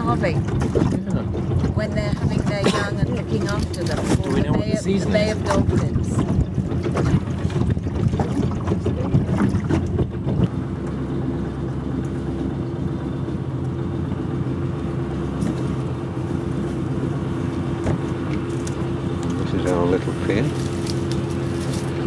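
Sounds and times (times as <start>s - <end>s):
wind buffeting microphone: 0.0s - 11.4s
motorboat engine hum: 0.0s - 22.0s
water slapping hull: 0.0s - 22.0s.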